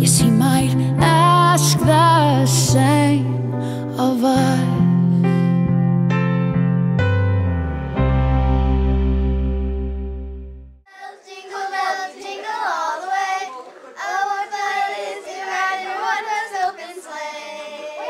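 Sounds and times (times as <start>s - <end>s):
piano chord with bass note: 0.2s - 10.8s
girls singing unaccompanied: 10.9s - 18.0s.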